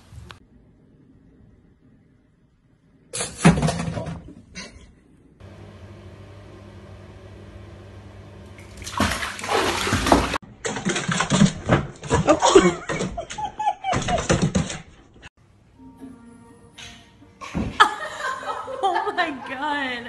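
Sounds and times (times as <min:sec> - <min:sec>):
water running into bathtub: 0:08.4 - 0:11.3.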